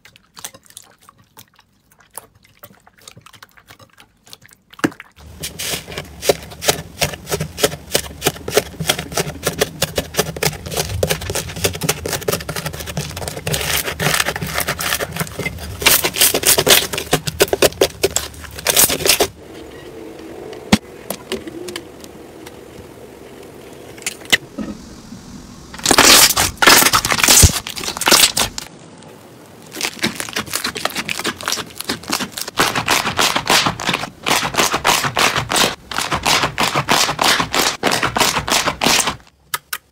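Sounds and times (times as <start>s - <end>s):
slime crust crackling: 25.7s - 28.7s, 29.6s - 39.1s
slime squishing: 29.7s - 39.0s.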